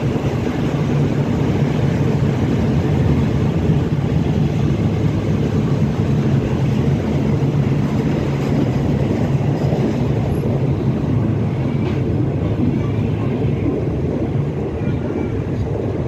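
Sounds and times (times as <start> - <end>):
train carriage rumbling: 0.0 - 16.0.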